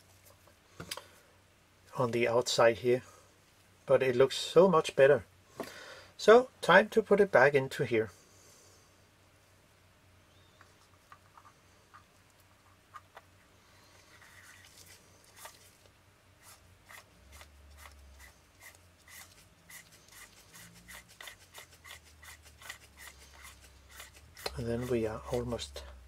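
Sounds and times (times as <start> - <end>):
metal lens parts rubbing: 10.5 - 25.6.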